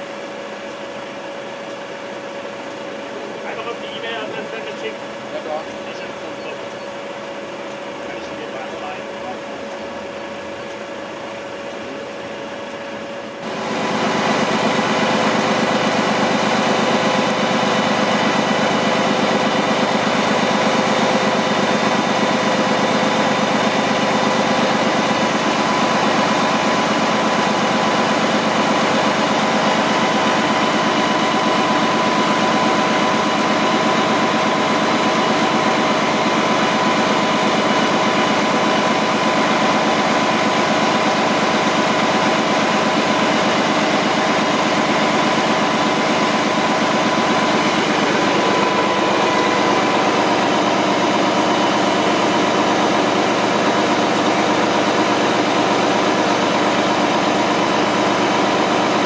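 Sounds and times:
diesel truck engine: 0.0 - 59.0
hydraulic whine: 0.0 - 59.0.

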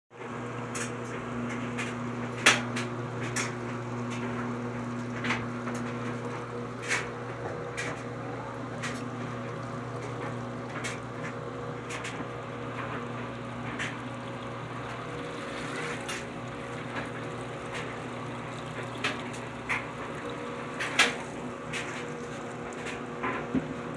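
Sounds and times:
drain pump humming: 0.2 - 23.9
water gushing into a sink: 0.3 - 23.9.

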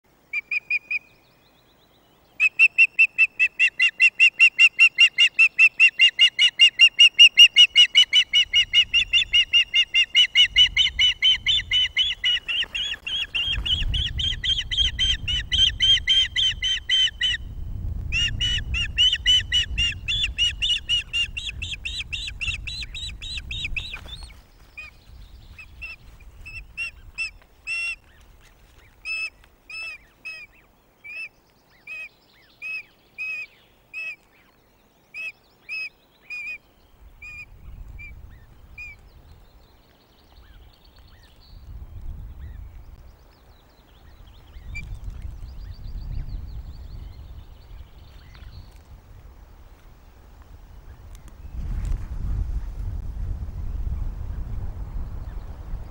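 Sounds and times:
osprey high piping calls: 0.3 - 1.2, 2.4 - 17.5, 18.1 - 28.2, 28.8 - 36.6.

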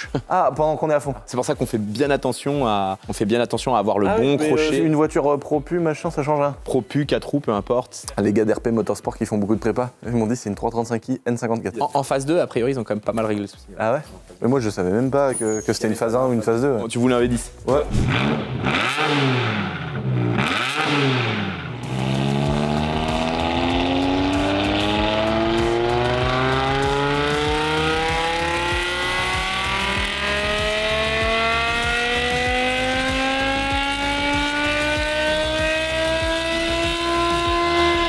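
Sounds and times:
car engine revving on dyno: 17.9 - 38.0
engine full-throttle power run: 18.0 - 38.0.

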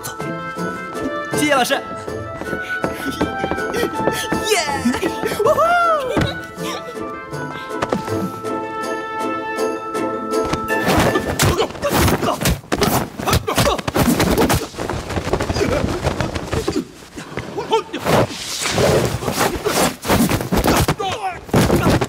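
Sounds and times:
background music: 0.0 - 12.7
shouts and grunts: 4.4 - 6.8, 20.7 - 22.0.

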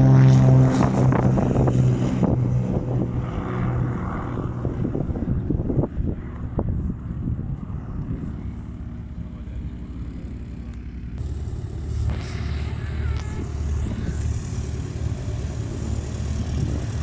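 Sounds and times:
low engine rumble: 0.0 - 17.0
propeller aircraft engine droning: 0.0 - 17.0.

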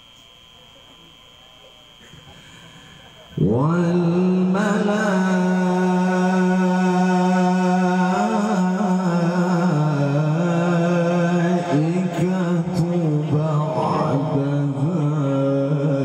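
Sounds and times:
man reciting melodically: 3.4 - 16.0.

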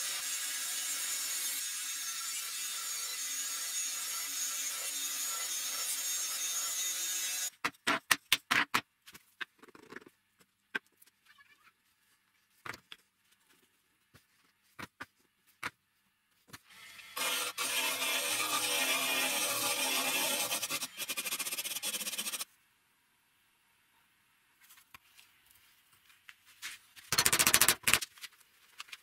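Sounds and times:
band saw cutting wood: 16.7 - 22.5.

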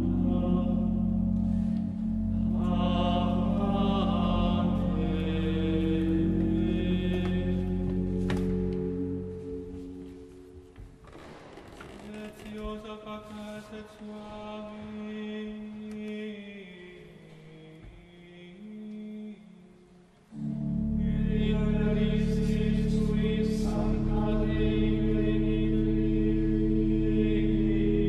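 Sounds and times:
church organ chords: 0.0 - 11.0, 20.3 - 28.0.

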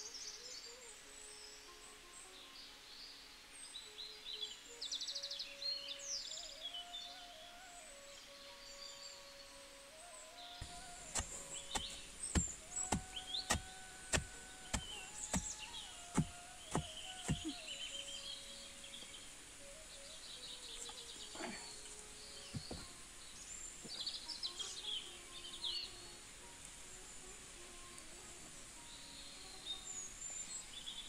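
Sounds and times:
birds chirping: 0.0 - 31.0
pestle thudding in wooden mortar: 10.6 - 17.6, 22.5 - 22.9.

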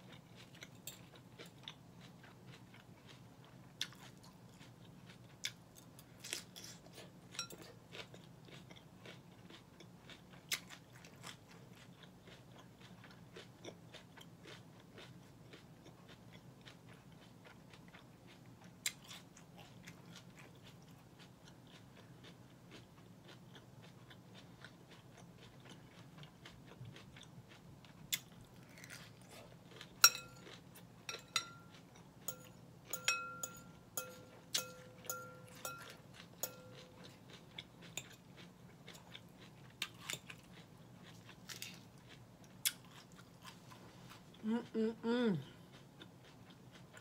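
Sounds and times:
crunchy chewing: 0.0 - 44.4
fork clinking on glass bowl: 30.0 - 37.1.

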